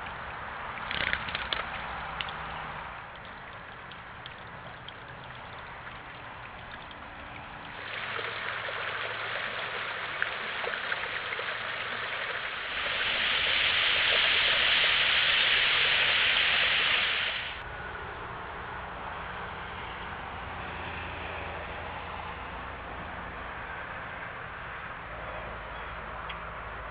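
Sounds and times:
creek water rushing: 0.0 - 17.6.

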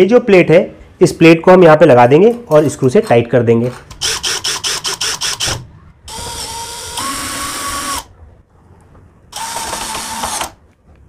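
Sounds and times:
cordless drill motor whine: 6.1 - 8.1, 9.3 - 10.6.

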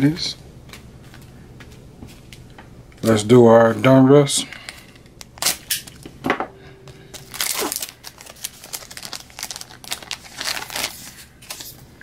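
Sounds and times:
card pack wrapper crinkling and tearing: 4.7 - 6.1, 7.1 - 11.8.

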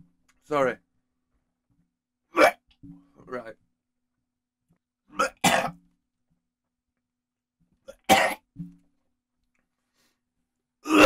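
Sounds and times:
man coughing: 5.2 - 5.7, 7.9 - 8.4.

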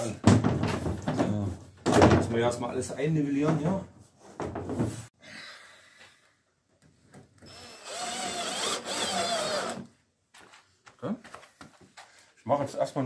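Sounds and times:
knock: 0.2 - 2.3
cordless drill whining into plywood: 7.4 - 9.9.

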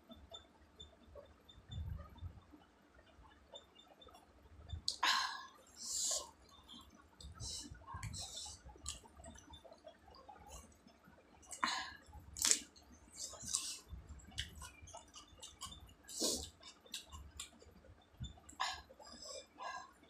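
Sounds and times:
person chewing with wet smacks: 6.1 - 19.6.

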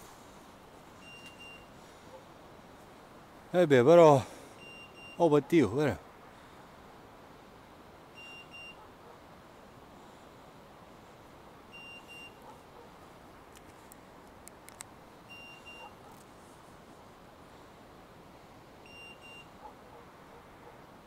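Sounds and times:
beeper collar short high beeps: 4.6 - 5.3, 8.2 - 8.8, 11.8 - 12.4, 15.3 - 15.9, 18.9 - 19.5
sharp clicks: 13.5 - 14.9.

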